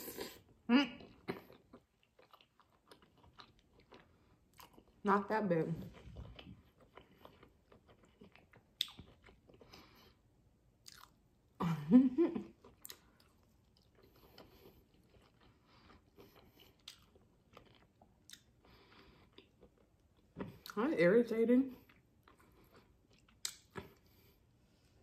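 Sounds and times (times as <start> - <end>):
chewing crispy fried food: 0.0 - 11.6, 12.4 - 20.8, 21.7 - 24.5
soft mouth clicks: 23.4 - 23.9.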